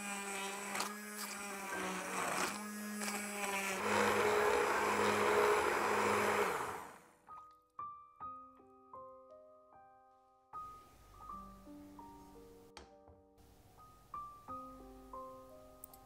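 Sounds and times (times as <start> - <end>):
immersion blender churning soup: 0.0 - 7.1.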